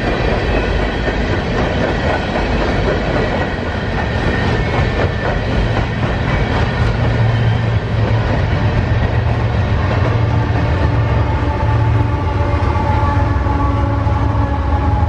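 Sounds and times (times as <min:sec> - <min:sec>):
train wheels clacking over rail joints: 0:00.0 - 0:11.6
locomotive engine drone: 0:00.0 - 0:15.0.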